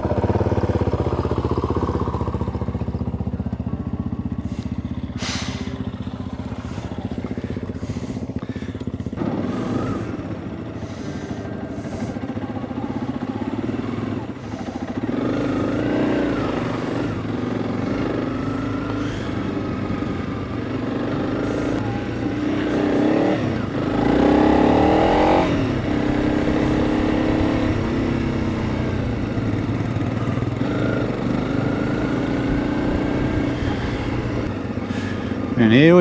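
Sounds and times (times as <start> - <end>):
motorcycle engine running: 0.0 - 36.0.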